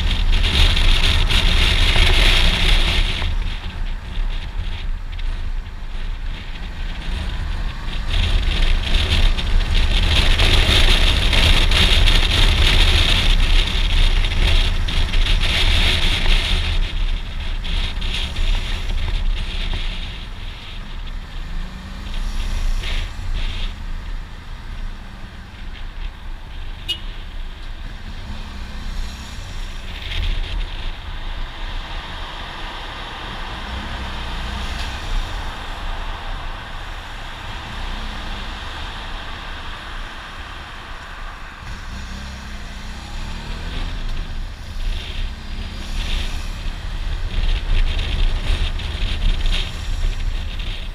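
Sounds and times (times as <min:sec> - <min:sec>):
motorcycle engine revving: 0:00.0 - 0:50.9
motorcycle engine rumble: 0:00.0 - 0:50.9
wind rushing over microphone: 0:00.0 - 0:50.9.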